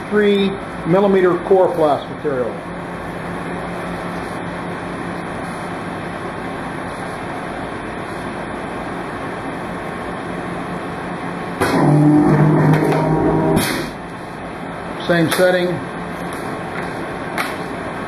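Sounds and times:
deep machine drone: 11.0s - 14.1s
die cutter press humming: 11.5s - 14.4s.

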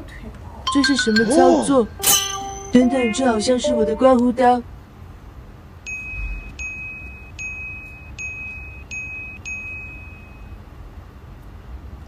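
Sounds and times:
bright chime ringing: 0.7s - 3.6s.

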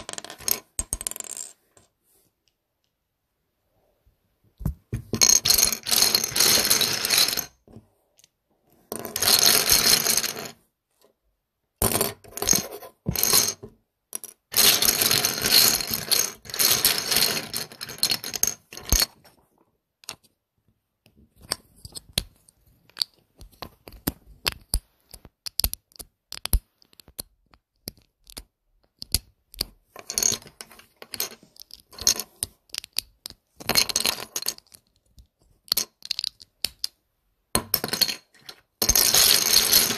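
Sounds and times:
plastic bricks clattering: 22.9s - 36.9s.

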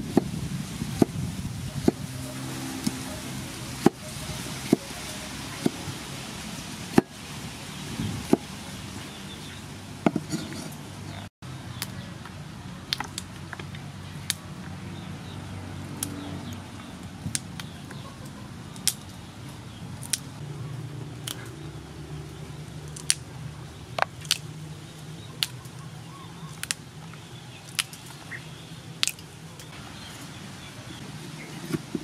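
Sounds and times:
beans snapping: 20.0s - 20.3s, 22.8s - 23.3s, 23.9s - 24.6s, 25.2s - 25.9s, 26.5s - 28.2s, 29.0s - 29.7s.

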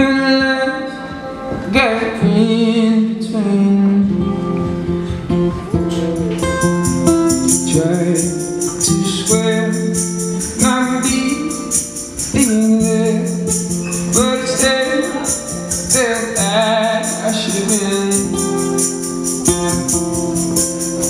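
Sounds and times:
man singing: 0.0s - 4.6s, 7.3s - 21.0s
strummed acoustic guitars: 0.0s - 21.0s
quick high percussion ticks: 6.0s - 21.0s.

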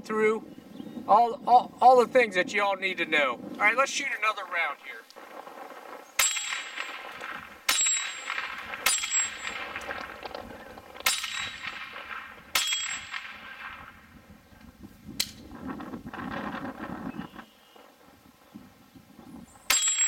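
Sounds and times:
steel target ringing: 6.2s - 10.2s, 11.0s - 13.8s, 19.7s - 20.0s
pistol shots: 6.2s - 14.0s.

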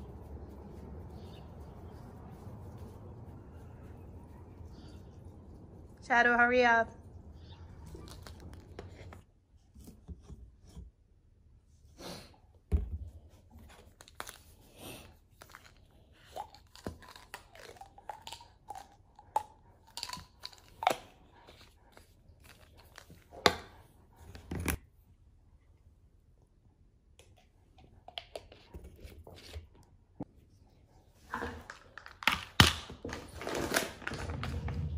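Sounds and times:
plastic bottle crinkling: 15.3s - 18.9s.

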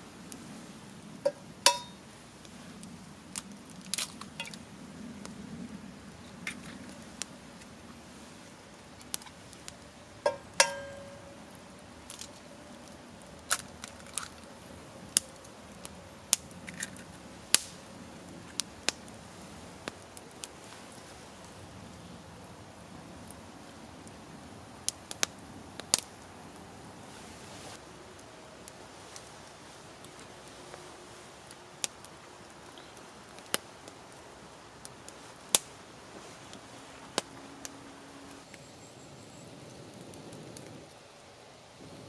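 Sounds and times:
campfire crackling and popping: 0.0s - 42.0s
frying pan ringing: 1.7s - 2.0s, 10.2s - 11.4s.

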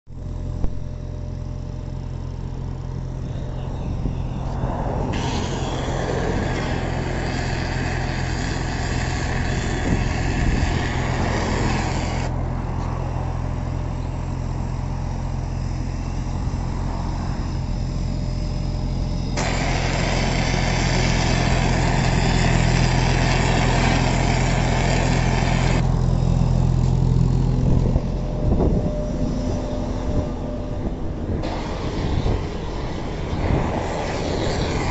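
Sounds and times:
machine engine droning: 0.1s - 34.9s
hiss of marking gear: 5.2s - 12.3s.

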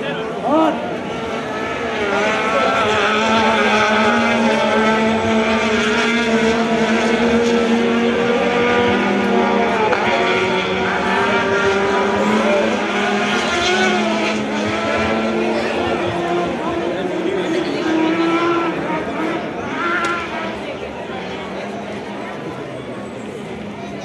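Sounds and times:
race car engines droning: 0.0s - 24.0s.

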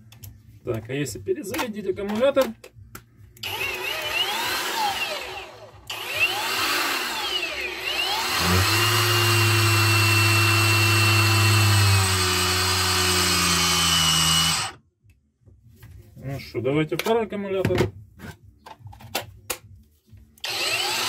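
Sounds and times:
angle grinder running: 3.4s - 14.8s, 20.4s - 21.0s.

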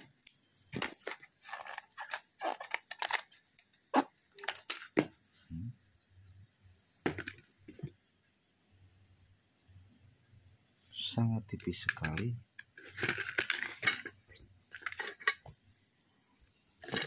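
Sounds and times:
packaging rustling and knocking: 0.7s - 3.4s, 7.0s - 8.0s, 16.8s - 17.0s.

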